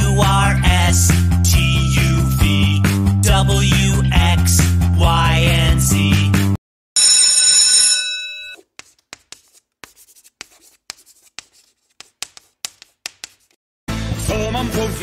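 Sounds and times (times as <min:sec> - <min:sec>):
bell ringing: 0:07.0 - 0:08.6
chalk tapping on blackboard: 0:08.6 - 0:13.6.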